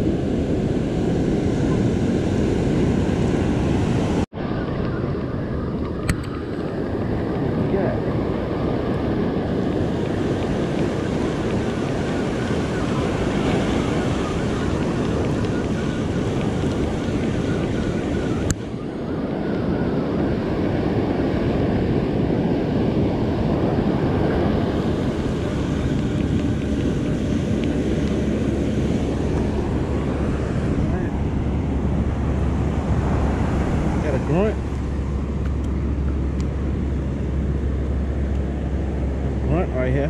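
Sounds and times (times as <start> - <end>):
ocean surf breaking: 0.0 - 40.0
wind buffeting microphone: 0.0 - 40.0.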